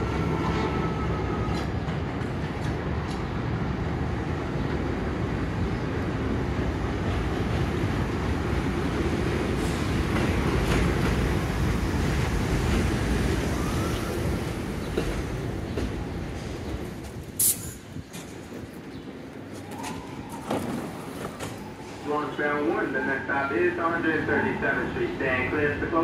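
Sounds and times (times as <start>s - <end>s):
subway train wheels rumbling: 0.0s - 26.0s
short sharp hiss: 17.4s - 17.9s.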